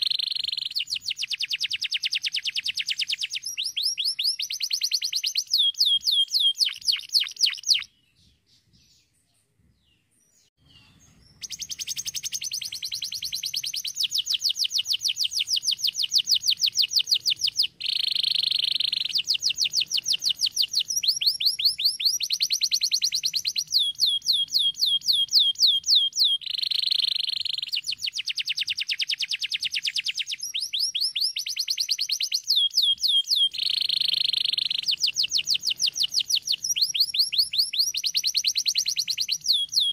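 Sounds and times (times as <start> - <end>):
canary singing trills: 0.0 - 9.2, 9.9 - 39.9.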